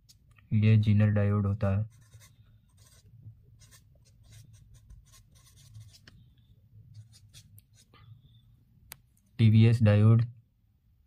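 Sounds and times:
marker scratching on paper: 1.9s - 6.2s, 6.9s - 7.9s.

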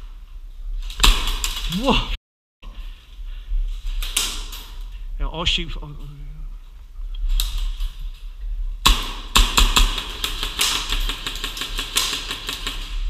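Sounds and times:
airsoft guns firing: 8.8s - 13.0s.

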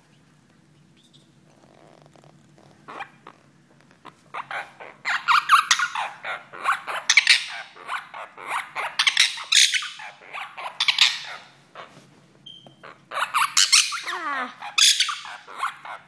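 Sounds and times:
parakeet squawking: 2.8s - 3.4s, 4.0s - 11.9s, 12.7s - 16.0s.

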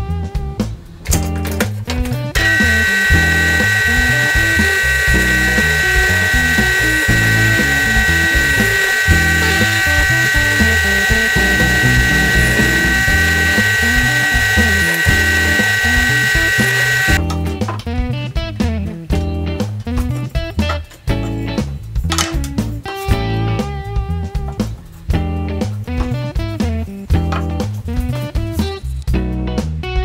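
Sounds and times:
background music: 0.0s - 29.8s
drill press whine: 2.4s - 17.2s.

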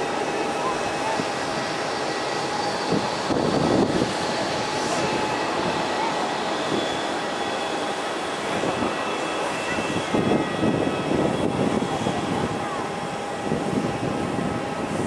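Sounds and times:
jet engines whining: 0.0s - 15.0s.

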